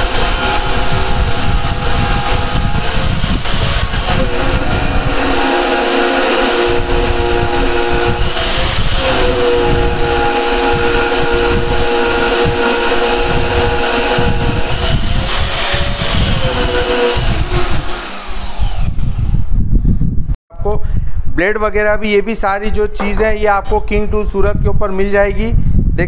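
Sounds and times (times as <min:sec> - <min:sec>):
band saw cutting steel: 0:00.0 - 0:19.5.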